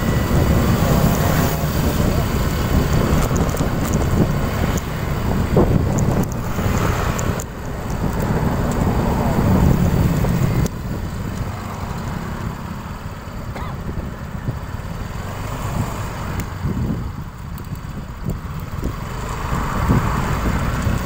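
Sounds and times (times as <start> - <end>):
motorbike road noise rumble: 0.0 - 21.0
wind buffeting microphone: 0.0 - 21.0.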